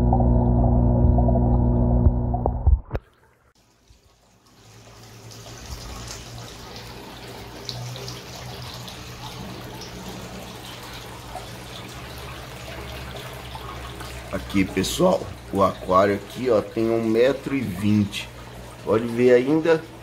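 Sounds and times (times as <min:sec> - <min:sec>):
tonal ambient sound: 0:00.0 - 0:02.7
low steady hum: 0:00.0 - 0:03.0
aquarium water trickling: 0:00.0 - 0:20.0.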